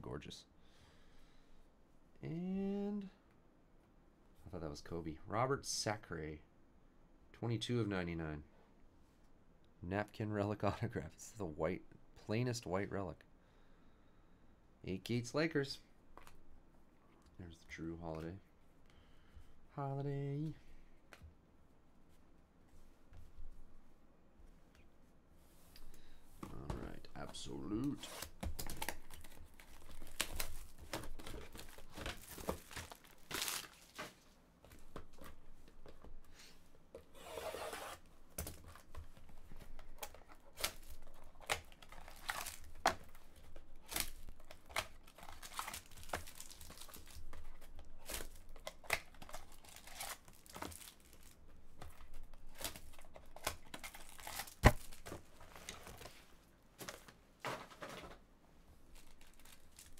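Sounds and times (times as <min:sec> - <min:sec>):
plastic crinkling: 0:26.8 - 0:34.3, 0:38.4 - 0:56.2, 0:58.9 - 0:59.9.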